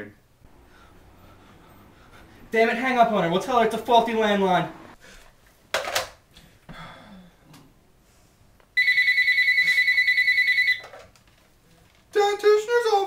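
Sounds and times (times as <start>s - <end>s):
telephone ringing: 8.8s - 11.1s.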